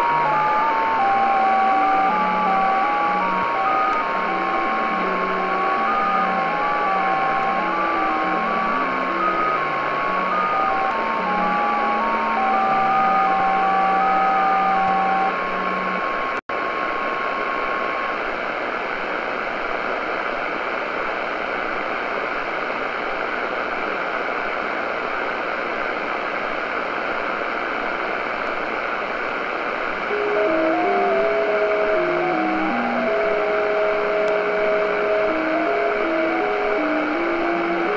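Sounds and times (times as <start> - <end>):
digital radio tones hopping pitch: 0.0 - 16.2, 30.1 - 37.9
radio band hiss: 0.0 - 37.9.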